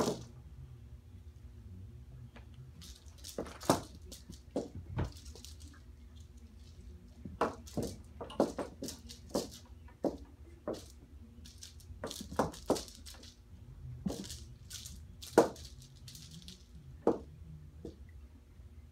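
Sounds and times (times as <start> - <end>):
kittens scuffling: 2.4 - 17.3.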